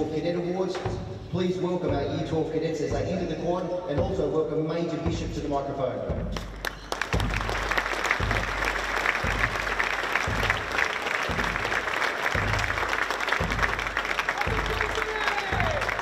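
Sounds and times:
bass drum marching beat: 0.0s - 16.0s
crowd applause: 6.4s - 16.0s.

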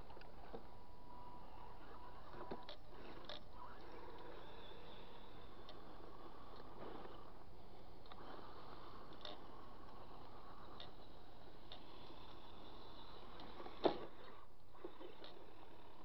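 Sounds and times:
faint ticks: 9.0s - 12.8s.

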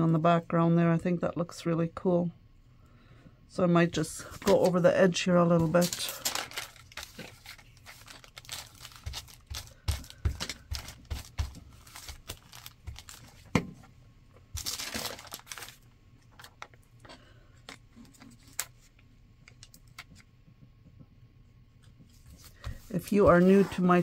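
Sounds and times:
paper crinkling and rustling: 4.2s - 13.5s, 14.5s - 16.8s, 17.6s - 20.2s.

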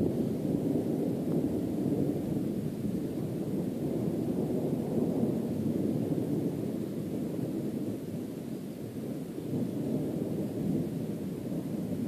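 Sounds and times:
distant thunder rumbling: 0.0s - 8.1s, 9.2s - 12.0s.

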